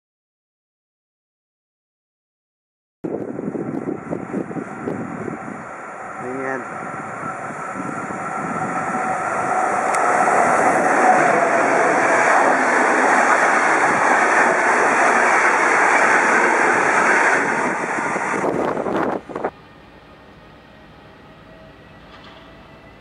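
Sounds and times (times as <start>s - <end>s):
train wheels rushing on rails: 3.1s - 23.0s
faint steady whine: 19.3s - 23.0s.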